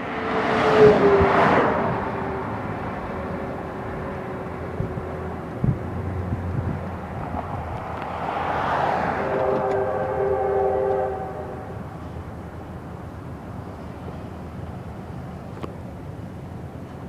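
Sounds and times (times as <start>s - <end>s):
locomotive air horn: 9.0s - 12.2s.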